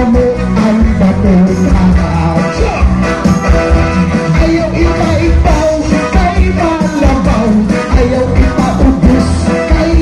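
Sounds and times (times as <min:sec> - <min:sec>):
person singing: 0:00.0 - 0:03.2, 0:04.1 - 0:10.0
live band playing cha-cha-cha: 0:00.0 - 0:10.0.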